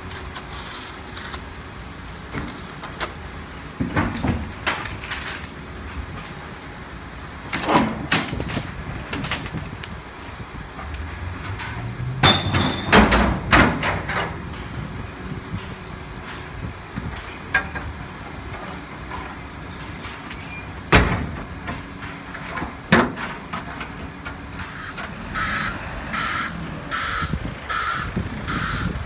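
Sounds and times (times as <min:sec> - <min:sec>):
metal container doors clanking: 0:07.5 - 0:09.6, 0:11.4 - 0:14.9, 0:17.2 - 0:25.2
truck engine idling: 0:21.2 - 0:29.0
crow cawing: 0:24.7 - 0:28.9.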